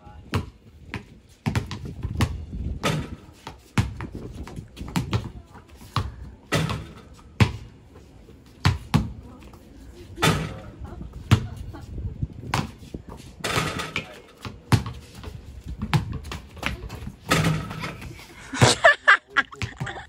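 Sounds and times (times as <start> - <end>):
basketballs bouncing on concrete: 0.0 - 9.6, 10.2 - 18.9, 19.5 - 20.0
person speaking: 18.4 - 20.0.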